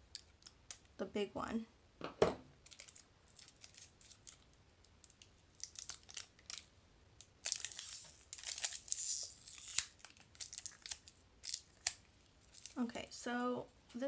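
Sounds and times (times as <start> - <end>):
plastic packaging crinkling: 2.6 - 6.7, 7.3 - 12.9.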